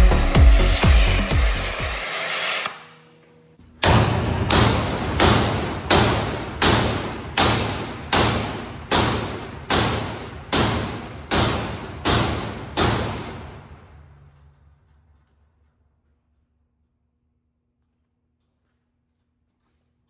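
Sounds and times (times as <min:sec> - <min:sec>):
hammer striking steel hinge: 0:03.8 - 0:13.7.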